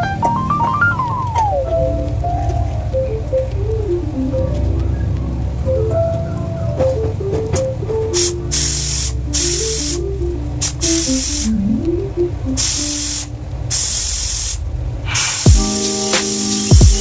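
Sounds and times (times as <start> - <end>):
background music melody: 0.0 - 13.6, 15.5 - 17.0
pressure cooker hissing steam: 8.2 - 10.0, 12.6 - 17.0.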